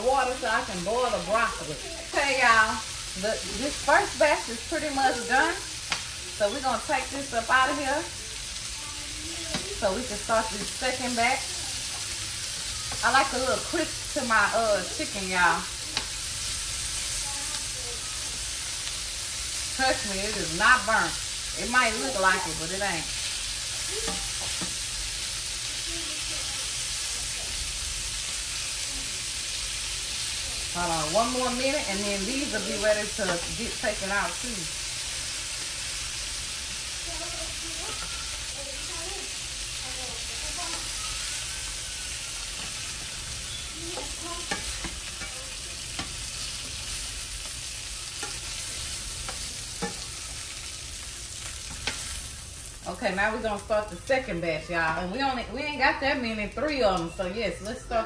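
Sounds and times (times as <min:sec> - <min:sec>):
chicken sizzling in oil: 0:00.0 - 0:58.0
metal tongs clicking on pan: 0:43.6 - 0:50.8, 0:51.4 - 0:52.2.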